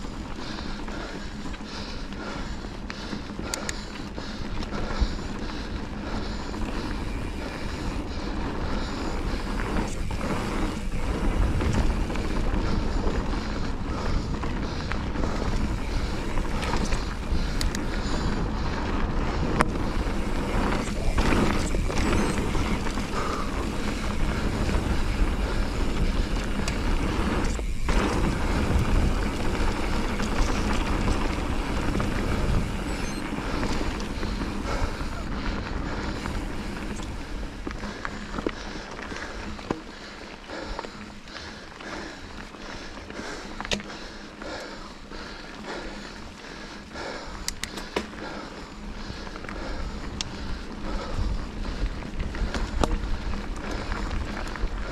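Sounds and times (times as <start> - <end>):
wind rushing over microphone: 6.9 - 37.8.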